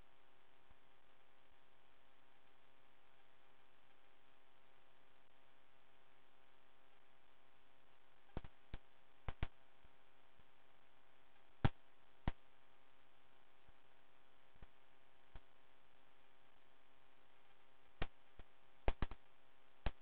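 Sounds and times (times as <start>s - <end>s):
faint electrical hum: 0.0s - 20.0s
sharp clicks: 18.0s - 19.2s.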